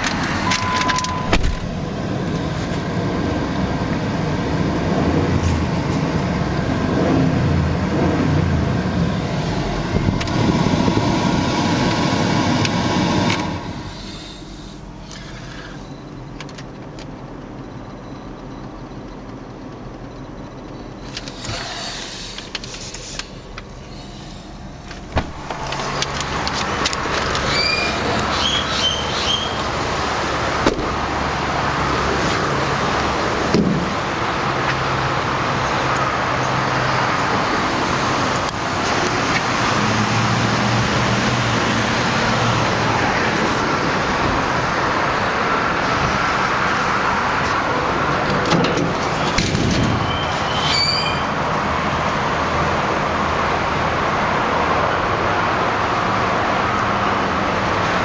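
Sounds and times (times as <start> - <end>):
road traffic: 0.0 - 58.0
passing vehicle engine hum: 21.1 - 58.0.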